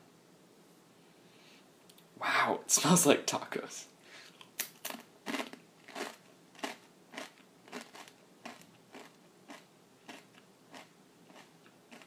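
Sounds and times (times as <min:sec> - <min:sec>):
chip crunching when chewed: 0:04.4 - 0:12.0.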